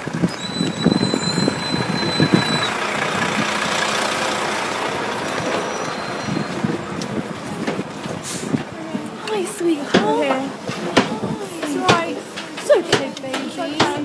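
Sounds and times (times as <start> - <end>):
truck engine running: 0.0 - 9.3
footsteps on road: 2.7 - 14.0.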